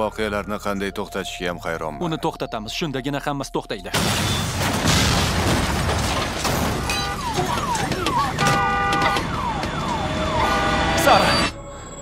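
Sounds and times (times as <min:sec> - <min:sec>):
cars exploding and burning: 0:03.9 - 0:11.2
falling alarm-like tones: 0:06.9 - 0:12.0.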